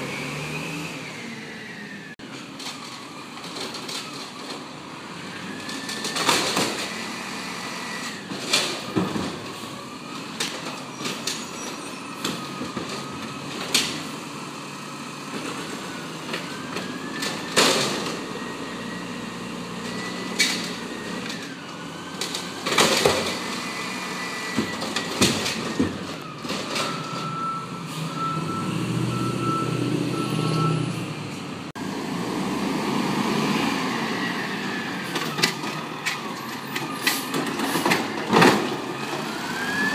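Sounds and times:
diesel engine revving: 0:00.0 - 0:02.2, 0:04.8 - 0:08.4, 0:12.0 - 0:39.9
truck beeps: 0:09.6 - 0:13.5, 0:14.1 - 0:22.1, 0:23.3 - 0:31.3
cart clanking against hopper: 0:35.0 - 0:39.9.

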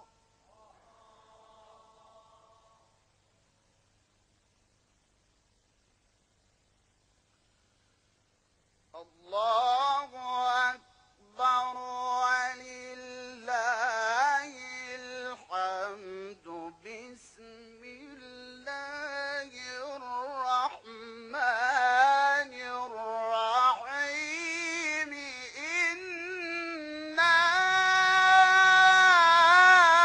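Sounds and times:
man chanting melodically: 0:09.0 - 0:30.0.

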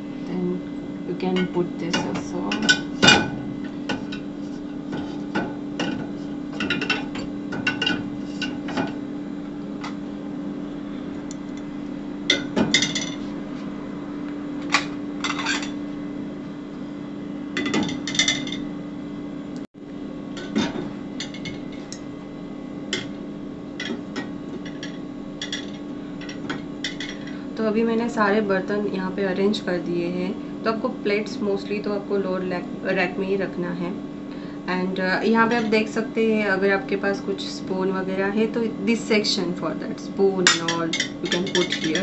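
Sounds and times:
steady low hum: 0:00.0 - 0:42.0
dishes clinking in dishwasher rack: 0:12.3 - 0:13.2, 0:17.6 - 0:18.6, 0:40.5 - 0:42.0.

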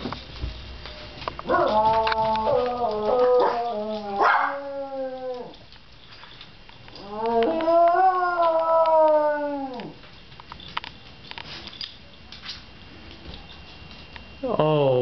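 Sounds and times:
dog howling: 0:01.4 - 0:05.6, 0:06.9 - 0:10.0.

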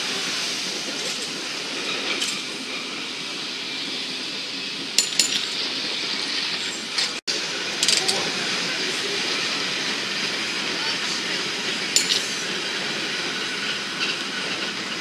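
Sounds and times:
cable car rumble and hiss: 0:00.0 - 0:15.0
metallic clinks and clanks: 0:05.0 - 0:05.6, 0:07.8 - 0:08.3, 0:12.0 - 0:12.3.

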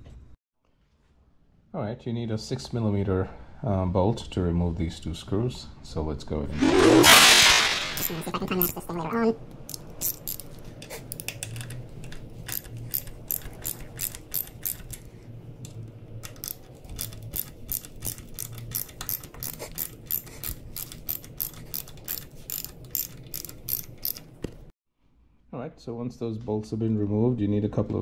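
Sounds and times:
ratchet wrench clicking: 0:09.7 - 0:11.7, 0:12.5 - 0:15.1, 0:16.2 - 0:24.4.

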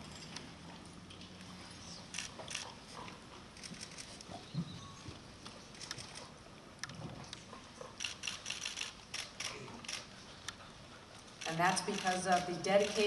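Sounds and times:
camera shutters clicking: 0:03.6 - 0:04.2, 0:08.0 - 0:10.1, 0:11.4 - 0:13.0.

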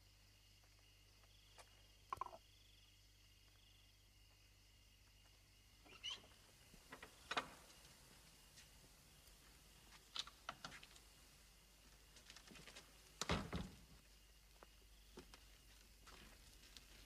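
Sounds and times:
soft footsteps and scuffs: 0:14.5 - 0:17.0.

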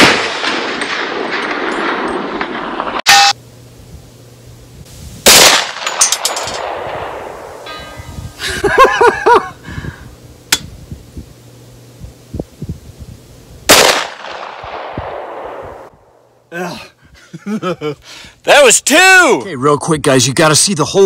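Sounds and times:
sharp click: 0:10.5 - 0:10.7.

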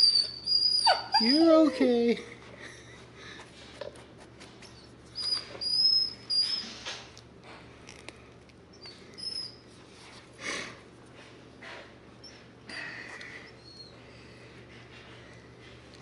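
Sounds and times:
dog whining: 0:00.0 - 0:02.1, 0:04.6 - 0:06.9, 0:08.7 - 0:09.7, 0:12.2 - 0:14.2.

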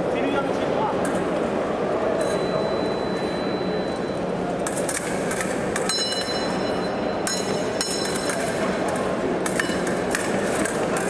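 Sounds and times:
fencing blades clashing: 0:04.6 - 0:11.0.

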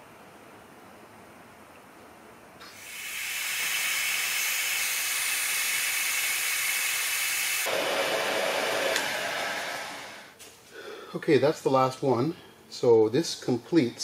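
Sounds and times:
heat gun blowing air: 0:02.6 - 0:10.4.

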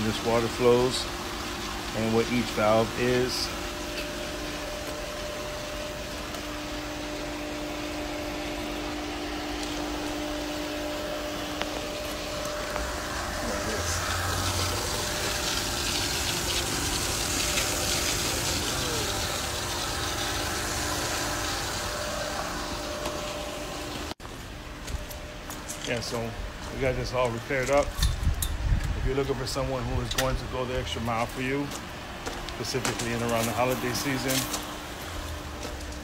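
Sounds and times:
water rushing through pipes: 0:00.0 - 0:24.2
pool pump humming: 0:00.0 - 0:36.0.

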